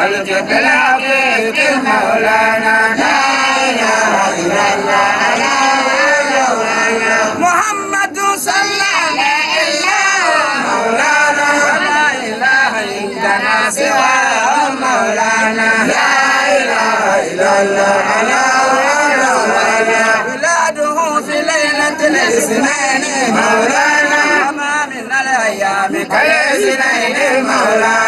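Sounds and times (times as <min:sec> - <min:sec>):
man chanting over loudspeaker: 0:00.0 - 0:03.0, 0:06.8 - 0:10.5, 0:18.7 - 0:28.0.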